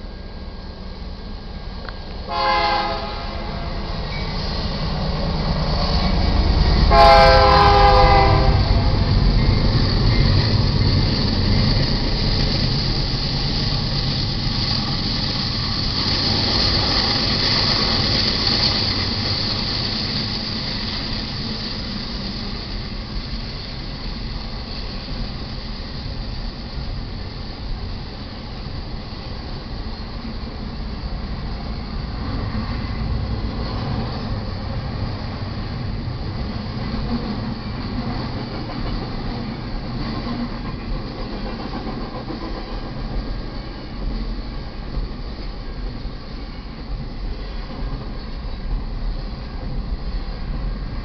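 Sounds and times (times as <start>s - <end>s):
train cars rumbling past: 0.0s - 51.0s
locomotive air horn: 2.3s - 3.9s, 6.9s - 8.7s.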